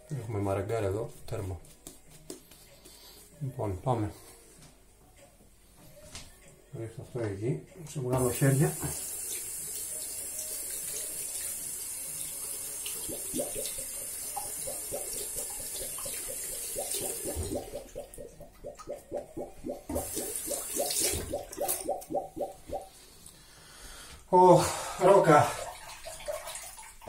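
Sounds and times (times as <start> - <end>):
tap water running into sink: 8.2 - 22.9, 25.6 - 27.0.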